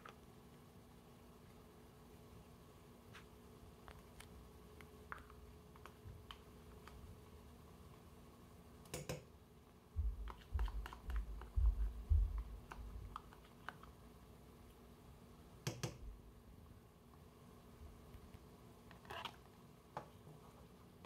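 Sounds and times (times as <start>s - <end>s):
dull low thumps: 10.0s - 12.6s.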